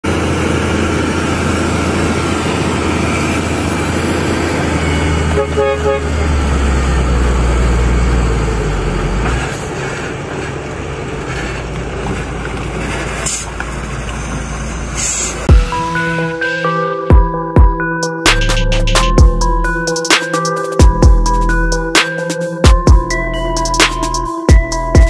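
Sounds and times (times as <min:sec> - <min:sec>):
truck engine droning: 0:00.0 - 0:25.0
horn toot: 0:04.9 - 0:06.3.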